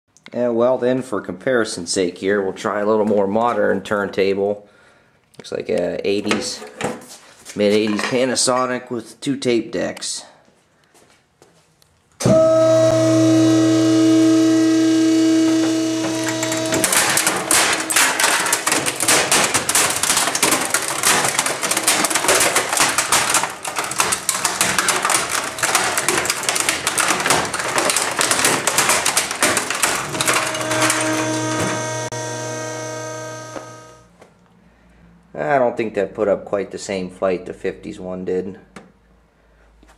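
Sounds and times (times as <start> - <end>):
compactor motor humming: 12.2 - 34.1
stereo cracking and crunching: 13.4 - 34.1.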